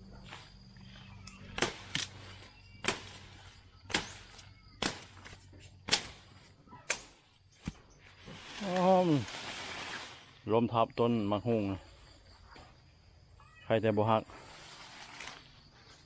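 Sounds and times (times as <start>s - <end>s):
high insect whine: 0.0s - 16.0s
short sharp cracks: 1.6s - 2.2s, 3.9s - 6.3s.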